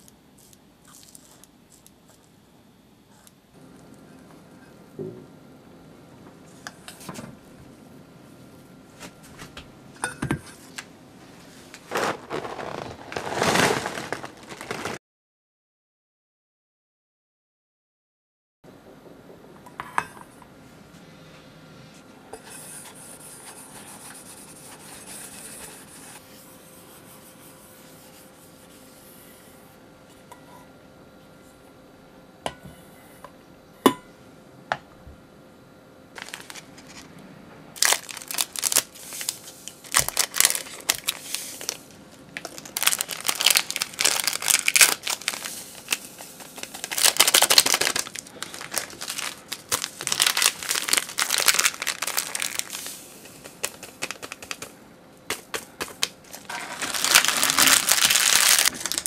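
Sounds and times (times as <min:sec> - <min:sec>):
plastic sachets tearing and crinkling: 0:11.8 - 0:15.0, 0:36.2 - 0:37.1, 0:37.8 - 0:54.7, 0:55.9 - 0:59.0.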